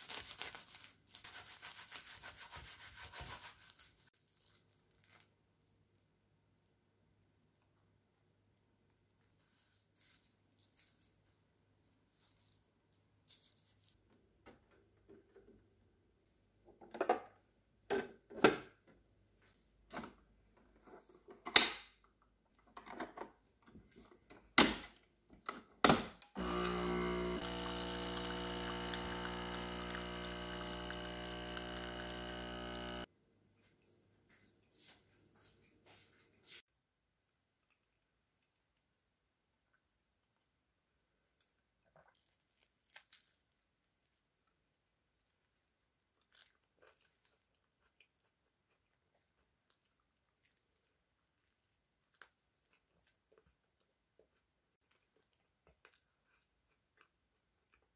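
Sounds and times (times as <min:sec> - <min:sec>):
coffee machine pump humming: 0:26.4 - 0:33.1.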